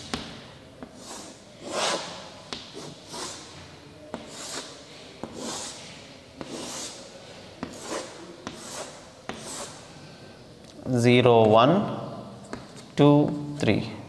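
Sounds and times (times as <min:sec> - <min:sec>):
chalk scraping on chalkboard: 0:00.8 - 0:09.9
chalk tapping on board: 0:04.1 - 0:05.8, 0:06.4 - 0:07.0, 0:07.6 - 0:09.8.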